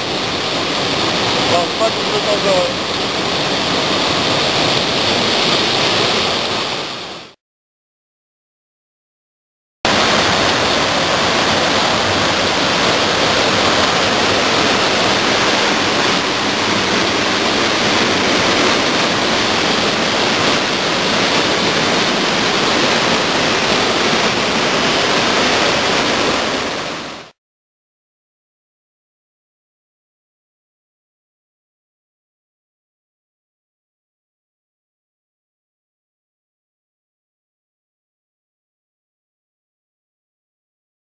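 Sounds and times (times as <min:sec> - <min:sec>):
waterfall pouring into pool: 0:00.0 - 0:07.4, 0:09.9 - 0:27.4.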